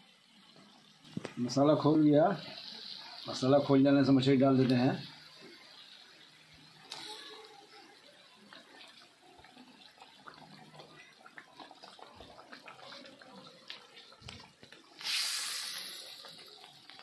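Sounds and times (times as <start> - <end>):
gravy bubbling: 0.0 - 17.0
sudden loud hiss: 15.0 - 16.6.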